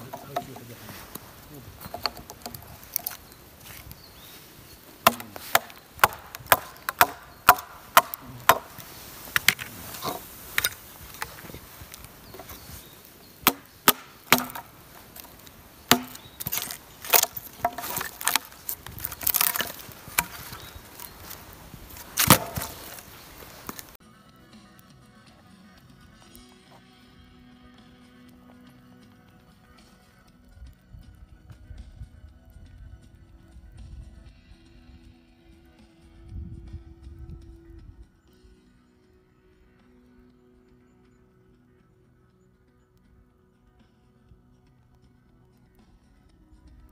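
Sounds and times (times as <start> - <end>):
hatchet chopping wood: 1.8 - 3.9, 5.0 - 11.6, 13.4 - 23.9.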